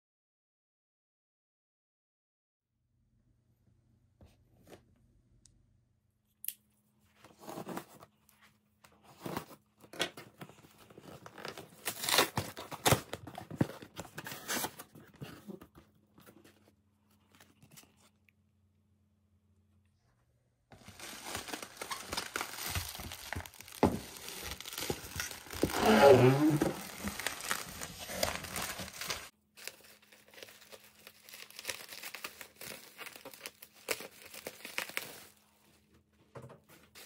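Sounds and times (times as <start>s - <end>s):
packaging rustling and clicking: 20.7s - 35.4s.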